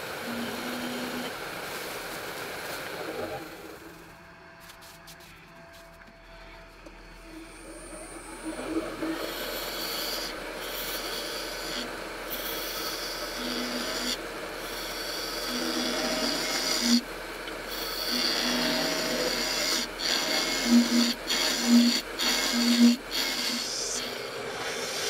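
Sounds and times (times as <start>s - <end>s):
lathe gouge scraping: 0.0s - 2.0s, 7.8s - 25.0s.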